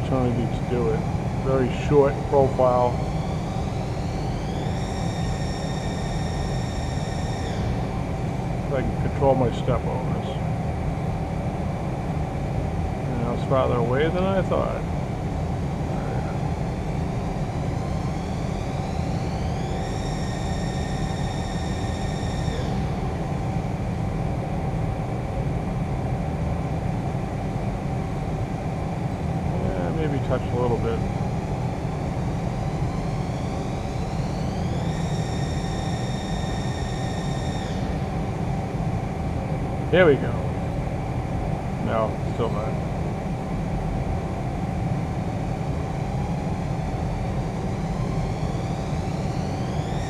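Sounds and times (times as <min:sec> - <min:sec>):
lathe humming: 0:00.0 - 0:24.9
lathe low hum and tone: 0:00.0 - 0:50.0
spindle high whine rising: 0:00.0 - 0:50.0.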